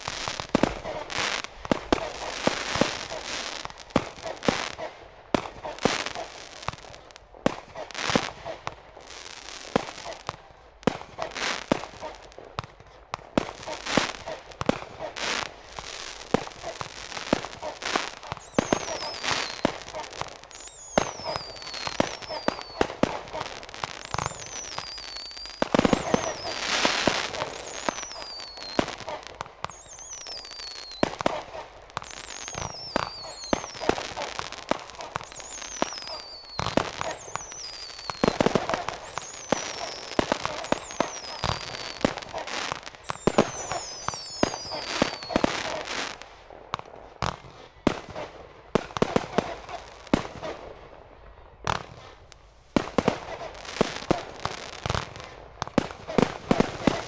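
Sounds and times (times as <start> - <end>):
firework bursts and crackling: 0.0 - 57.0
falling firework whistles: 15.0 - 46.2.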